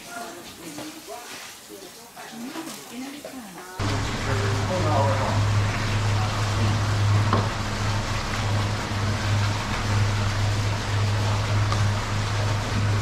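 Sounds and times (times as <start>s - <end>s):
constant hiss: 0.0s - 13.0s
low machine hum: 3.8s - 13.0s.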